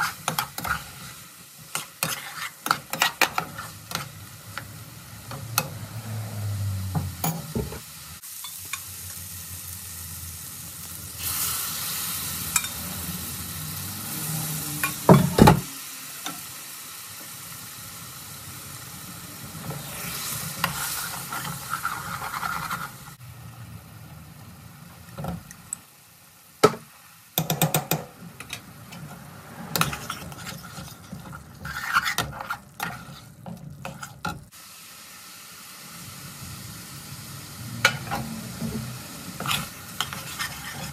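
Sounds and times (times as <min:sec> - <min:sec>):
ladle scraping a pan: 0:00.0 - 0:04.2, 0:19.7 - 0:23.0, 0:28.4 - 0:34.5, 0:37.9 - 0:40.9
curry sizzling in a pan: 0:00.0 - 0:40.9.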